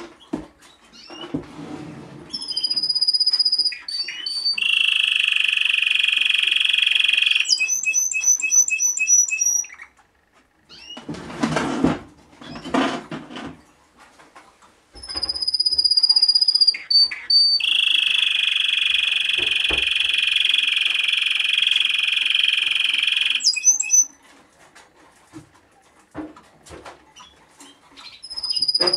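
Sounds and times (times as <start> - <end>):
canary singing: 2.3 - 10.0, 15.0 - 24.2, 27.2 - 28.9
rolling trill: 15.1 - 24.1
high whistle: 15.2 - 24.1, 28.4 - 28.9
noisy bursts: 15.8 - 23.5.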